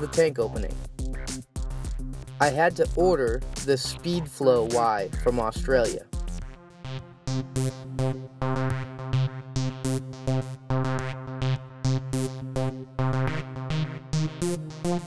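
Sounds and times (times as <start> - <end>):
drum machine beat: 0.0 - 6.5
synthesizer: 0.0 - 15.0.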